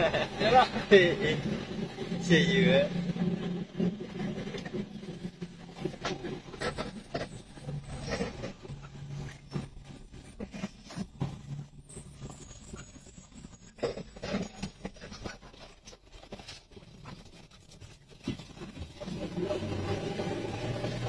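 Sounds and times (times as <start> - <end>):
low engine hum: 0.0 - 13.8.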